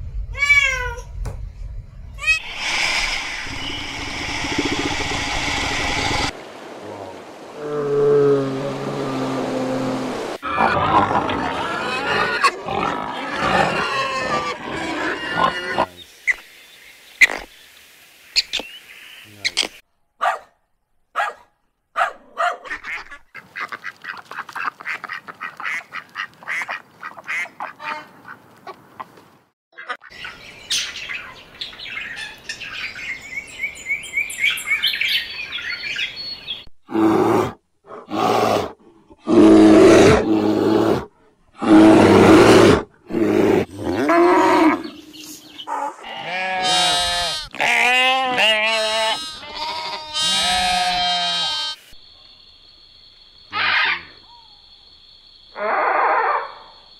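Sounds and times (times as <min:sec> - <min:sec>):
bear growls: 0:02.4 - 0:06.4, 0:07.6 - 0:16.0, 0:36.9 - 0:44.9
ducks quacking: 0:22.7 - 0:28.4
sheep bleating: 0:46.0 - 0:51.8.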